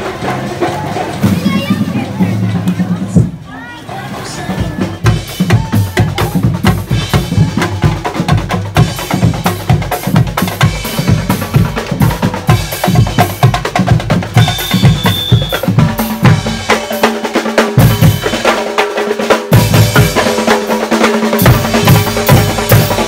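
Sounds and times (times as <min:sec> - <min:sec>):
drum band playing marching beat: 0:00.0 - 0:23.0
whistle blown: 0:14.4 - 0:15.8.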